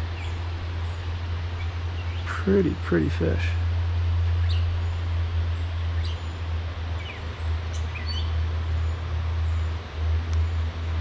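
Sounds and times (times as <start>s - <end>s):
low outdoor rumble and hiss: 0.0s - 11.0s.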